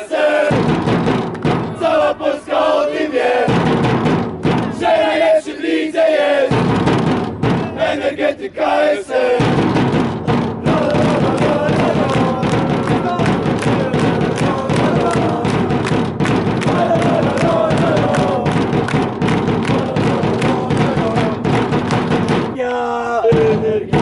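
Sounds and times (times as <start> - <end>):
supporters chanting: 0.0 - 0.7, 1.5 - 3.6, 4.6 - 6.7, 7.5 - 24.0
hand clapping: 1.2 - 1.5, 10.6 - 22.8.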